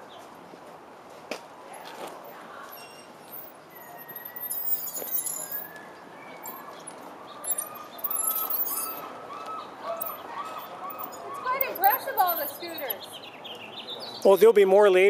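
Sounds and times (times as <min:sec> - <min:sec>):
light clinking and jingling: 0:02.8 - 0:09.1, 0:10.0 - 0:13.1
bird chirping: 0:02.8 - 0:14.4.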